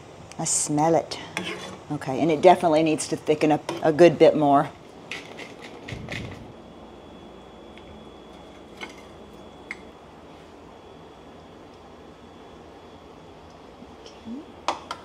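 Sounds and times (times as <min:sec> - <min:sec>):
low room hum: 0:00.0 - 0:15.0
light scrapes and knocks: 0:01.4 - 0:01.8.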